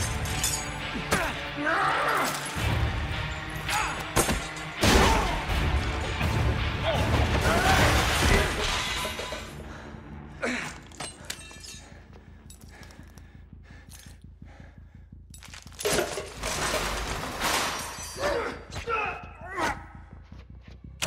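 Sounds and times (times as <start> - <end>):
glass and debris clinking: 0.0 - 1.1, 7.7 - 9.6, 10.8 - 12.9, 15.3 - 18.3.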